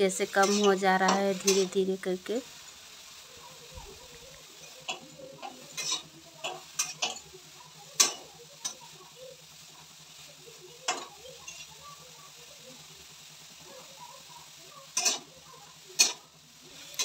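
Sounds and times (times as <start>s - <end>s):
soft sizzle: 0.0s - 17.0s
spatula scraping metal pan: 0.2s - 1.8s, 4.6s - 7.3s, 14.9s - 15.3s.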